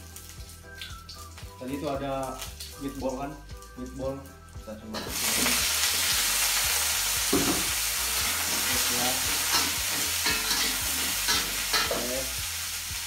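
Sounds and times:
meatballs sizzling in oil: 0.0s - 13.0s
spatula scraping a wok: 9.3s - 12.0s.

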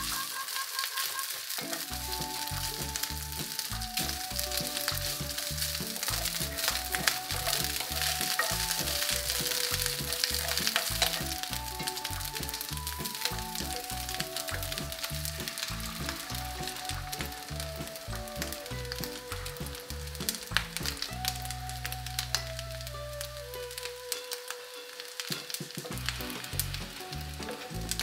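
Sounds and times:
background music with bass: 0.0s - 0.3s, 1.7s - 24.3s, 25.9s - 28.0s
wooden spatula stirring in pan: 0.0s - 21.5s
rice sizzling in a skillet: 0.0s - 28.0s.

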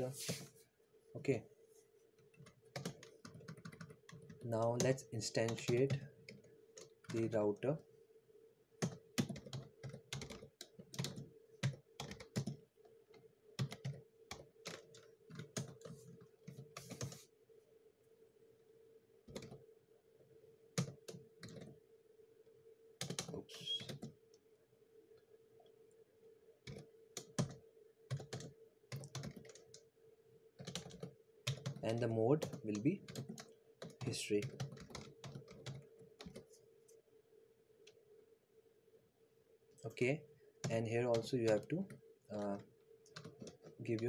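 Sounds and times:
faint hum: 0.0s - 44.0s
computer keyboard typing: 2.2s - 7.8s, 8.8s - 17.2s, 19.2s - 19.6s, 20.8s - 21.8s, 23.0s - 24.4s, 26.6s - 29.9s, 30.6s - 36.5s, 40.6s - 44.0s.

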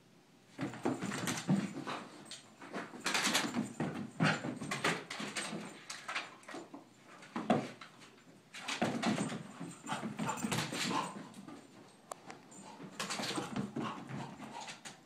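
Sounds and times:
dog panting: 9.4s - 15.0s.

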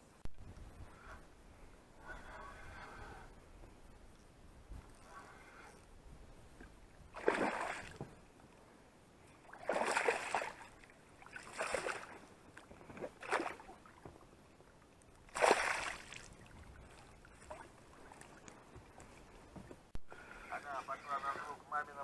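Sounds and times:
water splashes: 7.1s - 8.1s, 9.4s - 14.2s, 15.2s - 19.4s.

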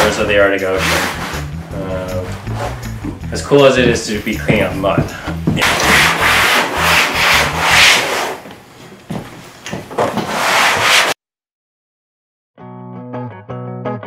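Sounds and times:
hand scrubbing vinyl skin: 0.0s - 3.0s, 3.7s - 8.5s, 10.2s - 11.2s.

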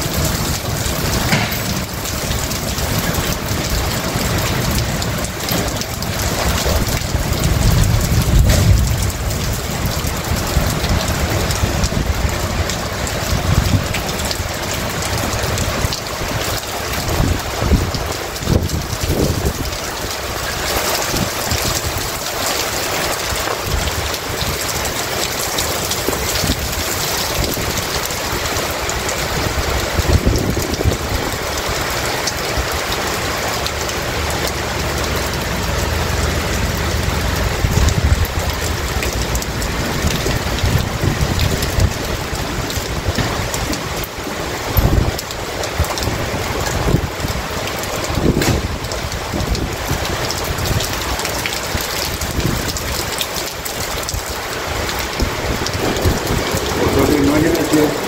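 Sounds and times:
low rumbles: 0.0s - 13.9s
heavy rain pouring: 0.0s - 58.0s.

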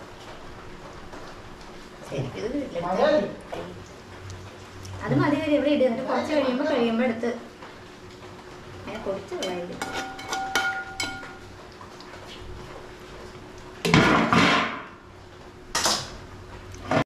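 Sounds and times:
metal utensils clinking on pot: 9.0s - 11.4s
pot ringing: 9.4s - 11.4s.

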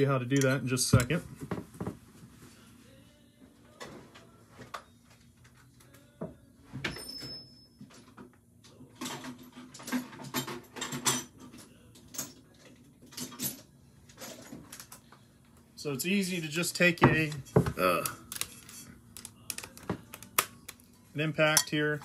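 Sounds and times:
tools clattering on workbench: 9.0s - 15.0s.

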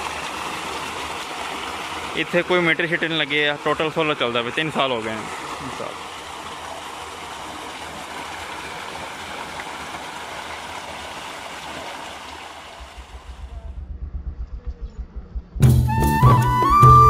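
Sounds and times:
water gushing into tank: 0.0s - 13.4s
low irregular rumble: 12.7s - 15.9s.

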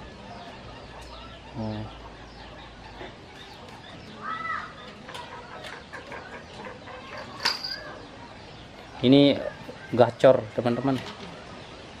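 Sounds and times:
small birds chirping: 0.0s - 12.0s
fowl clucking: 4.8s - 7.4s.

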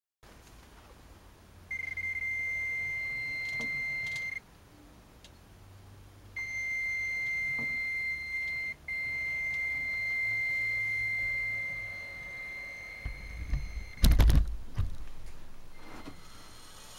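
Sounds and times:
electric motor whine: 15.8s - 16.9s.

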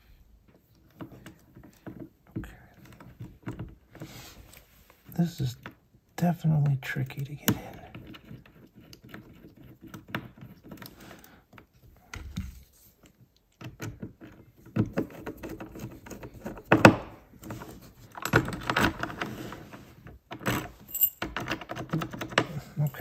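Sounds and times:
metal lock parts clicking and rattling: 13.5s - 19.6s, 20.3s - 23.0s.

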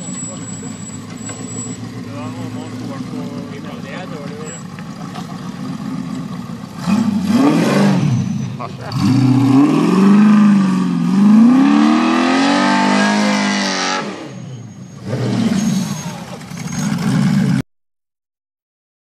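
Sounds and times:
buggy engine revving: 0.0s - 17.6s.

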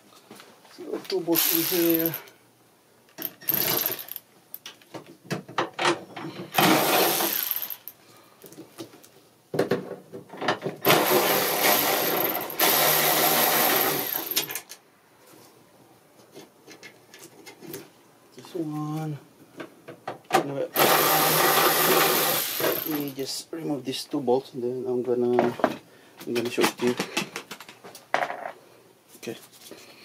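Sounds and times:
cordless ratchet running: 1.4s - 2.3s, 3.2s - 4.2s.

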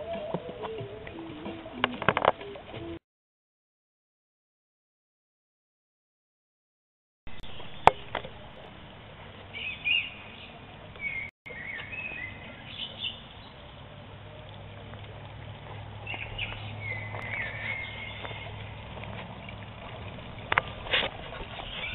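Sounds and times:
low steady hum: 7.3s - 21.9s
small birds chirping: 7.3s - 21.9s.

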